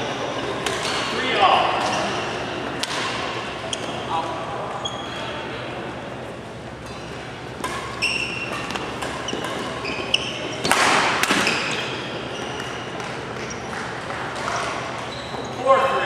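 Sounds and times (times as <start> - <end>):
shoes squeaking on court: 1.8 - 2.6, 3.3 - 5.4, 6.7 - 15.8
racket hitting shuttlecock: 2.8 - 3.4, 6.8 - 11.8.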